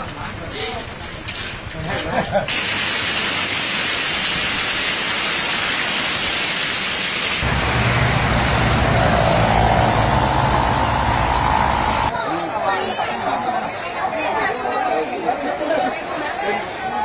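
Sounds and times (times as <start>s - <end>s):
heavy rain pouring: 2.5s - 12.1s
wind gusting on microphone: 7.4s - 12.1s.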